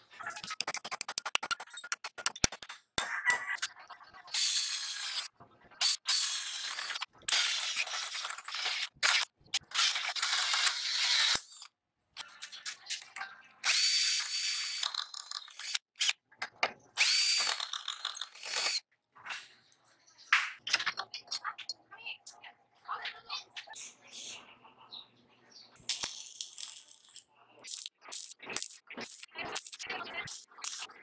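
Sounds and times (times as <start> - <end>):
cordless drill with hole saw: 9.8 - 11.4, 13.6 - 14.9, 17.0 - 17.6, 18.4 - 18.8.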